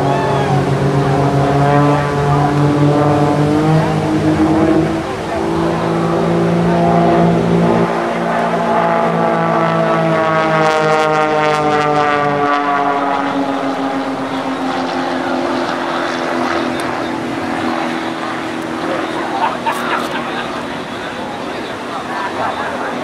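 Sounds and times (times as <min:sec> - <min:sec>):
propeller planes droning past: 0:00.0 - 0:23.0.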